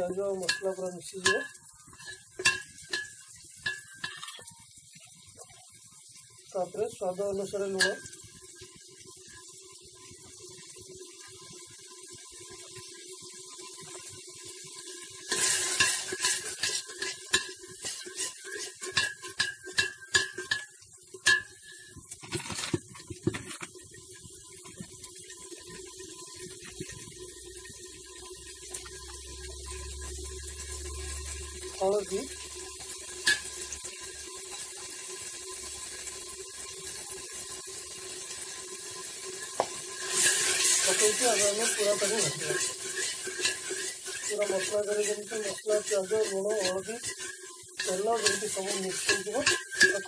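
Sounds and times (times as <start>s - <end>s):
brass pot ringing: 0.0s - 4.6s, 7.7s - 8.8s, 15.2s - 22.0s, 28.3s - 37.3s, 38.5s - 50.0s
spoon clinking and scraping pot: 0.0s - 4.6s, 7.6s - 8.8s, 15.2s - 23.8s, 31.0s - 35.0s, 39.2s - 50.0s
oil sizzling: 0.0s - 50.0s.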